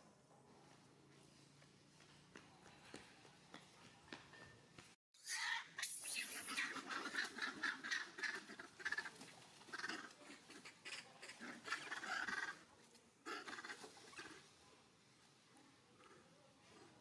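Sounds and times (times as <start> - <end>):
monkeys calling: 5.2 - 14.4.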